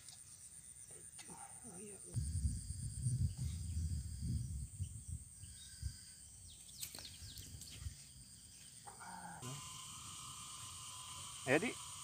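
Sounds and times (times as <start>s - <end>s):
high insect drone: 0.0s - 12.0s
wind buffeting microphone: 2.2s - 6.6s
bird chirps: 3.2s - 9.0s.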